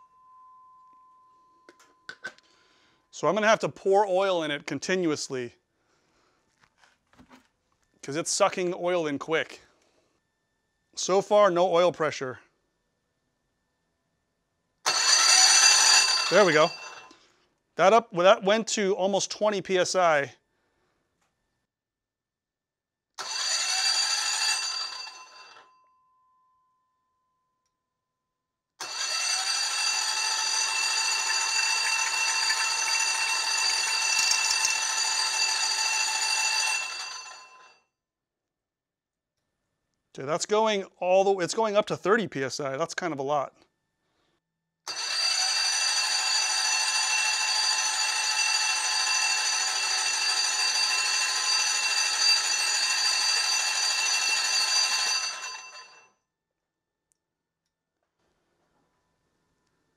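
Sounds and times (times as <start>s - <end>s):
electric starter motor whining: 14.9s - 17.1s, 23.2s - 25.4s, 28.8s - 37.4s, 44.9s - 47.2s.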